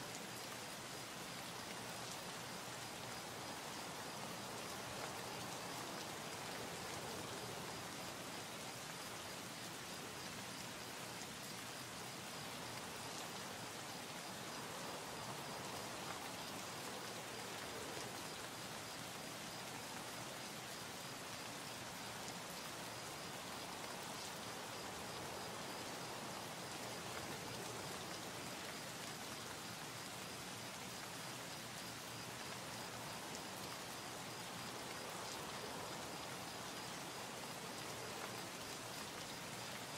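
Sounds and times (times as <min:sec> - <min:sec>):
rain-like hiss: 0:00.0 - 0:39.9.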